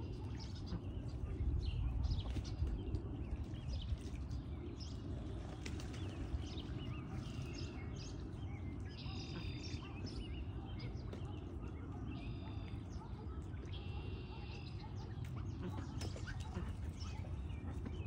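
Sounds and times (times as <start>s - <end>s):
ducks splashing in water: 0.0s - 18.0s
steady low rumble: 0.0s - 18.0s.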